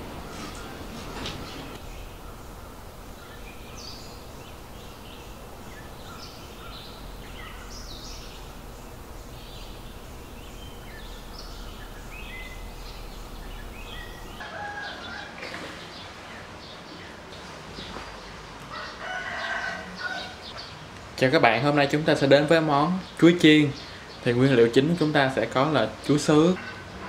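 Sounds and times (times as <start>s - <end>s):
birds chirping and whistling: 0.0s - 14.4s
farmyard fowl calling: 0.0s - 15.4s.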